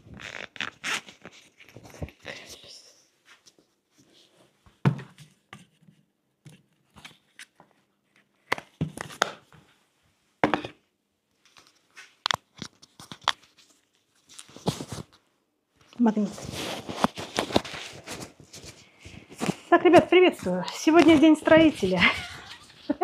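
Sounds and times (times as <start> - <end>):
fabric rustling against microphone: 11.4 - 23.0.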